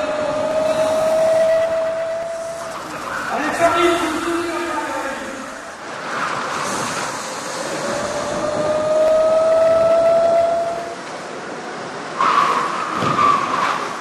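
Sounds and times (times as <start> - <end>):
high squeal: 0.0 - 4.4, 6.6 - 11.1.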